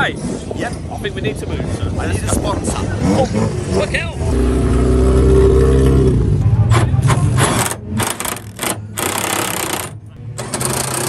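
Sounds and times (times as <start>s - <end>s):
race car engine running: 3.0s - 11.0s
impact wrench rattling: 7.4s - 11.0s.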